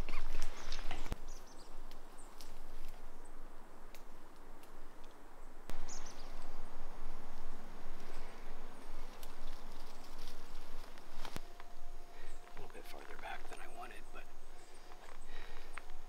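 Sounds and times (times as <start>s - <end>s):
snaps and rustles in leaves: 0.0s - 3.1s, 3.9s - 6.5s, 8.8s - 11.7s.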